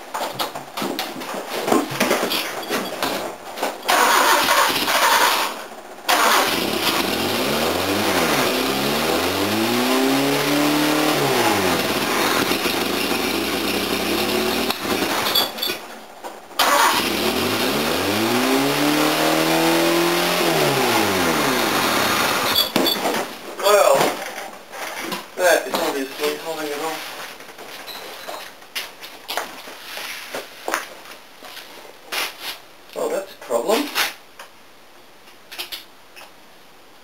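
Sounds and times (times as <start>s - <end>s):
car engine starting and revving: 3.9s - 15.4s, 16.6s - 22.7s.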